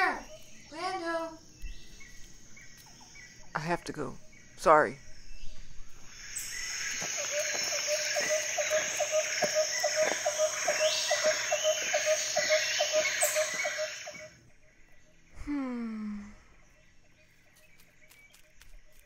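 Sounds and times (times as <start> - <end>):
insects chirping: 0.0 - 19.0
rhythmic chirp: 6.4 - 15.0.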